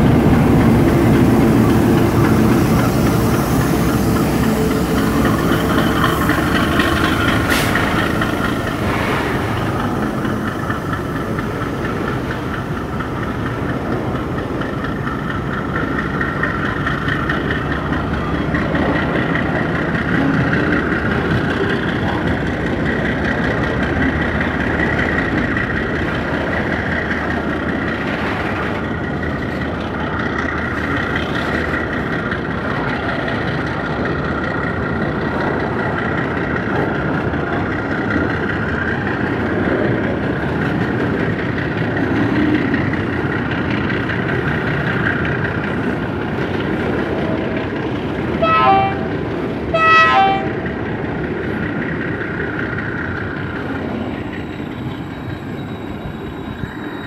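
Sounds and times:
train wheels rumbling on rails: 0.0 - 57.0
train horn toots: 48.4 - 50.7
high metallic squeal: 54.2 - 57.0.

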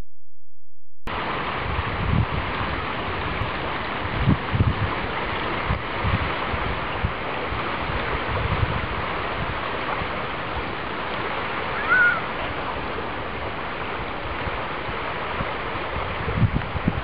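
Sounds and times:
waves washing onto sandy shore: 1.1 - 17.0
brief high call: 11.8 - 12.3.

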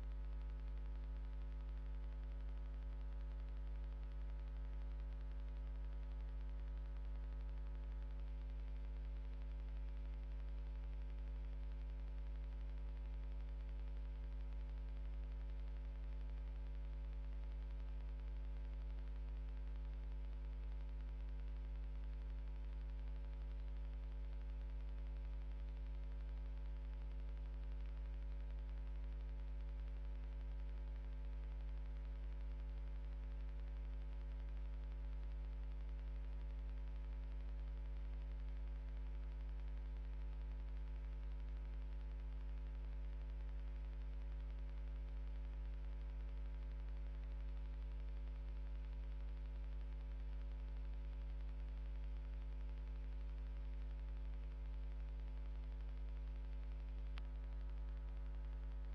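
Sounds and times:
electrical mains hum: 35.8 - 58.9.

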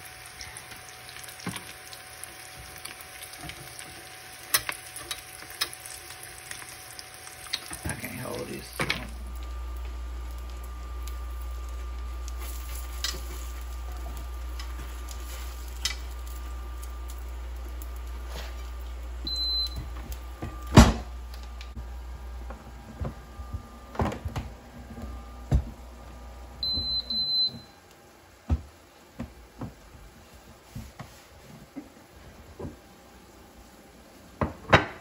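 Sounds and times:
grill humming: 0.0 - 35.0.

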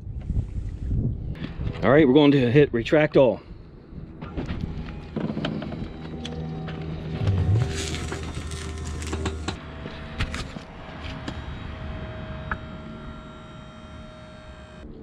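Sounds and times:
electric motor whine: 4.2 - 15.0.

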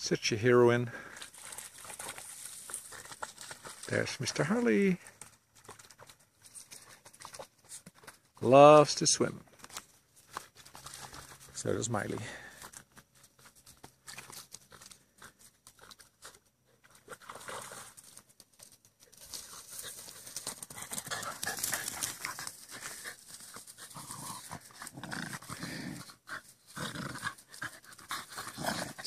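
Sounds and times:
rustling: 0.6 - 8.6, 9.4 - 29.0
dogs panting: 1.0 - 8.1, 19.1 - 29.0
dogs scuffling: 1.2 - 8.5, 12.6 - 25.5.

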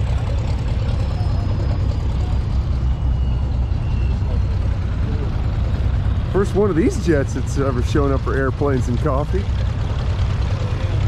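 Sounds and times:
jet engine whine: 0.0 - 11.0.

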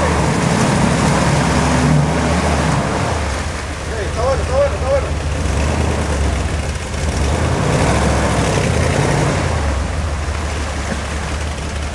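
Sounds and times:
off-road vehicle engine in mud: 0.0 - 11.9.

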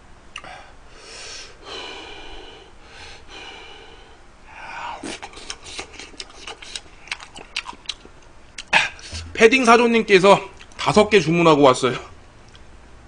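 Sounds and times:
sharp intake of breath: 0.4 - 5.0, 8.8 - 9.4
man breathing: 0.4 - 6.8, 8.8 - 9.4
wet chewing smacks: 5.0 - 9.3.

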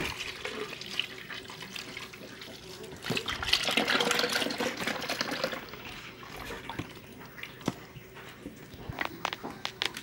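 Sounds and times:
milk pouring into blender jar: 3.1 - 5.8.

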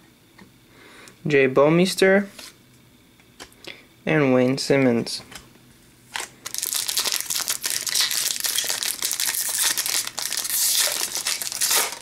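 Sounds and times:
card pack wrapper crinkling: 6.1 - 12.0.

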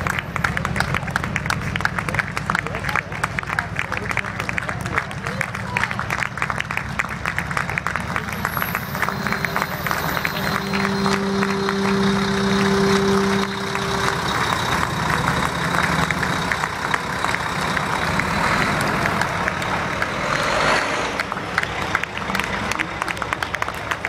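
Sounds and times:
bus engine driving past: 0.0 - 24.0
steady horn-like tone: 8.2 - 20.8.

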